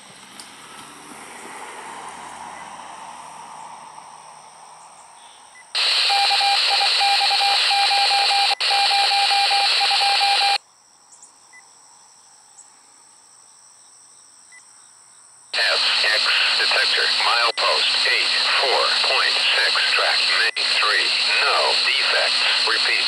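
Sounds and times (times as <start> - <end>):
radio static hiss: 5.8 - 10.6, 15.6 - 23.0.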